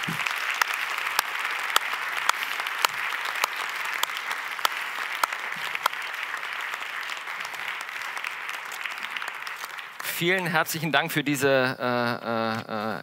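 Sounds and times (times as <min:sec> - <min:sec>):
nearby person clapping steadily: 0:00.0 - 0:10.1
audience applauding: 0:00.0 - 0:11.3.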